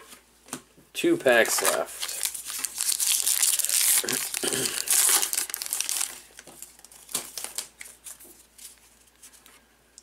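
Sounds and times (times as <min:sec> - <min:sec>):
cards rustling: 0:01.3 - 0:09.6
foil wrapper tearing and crinkling: 0:01.4 - 0:07.9.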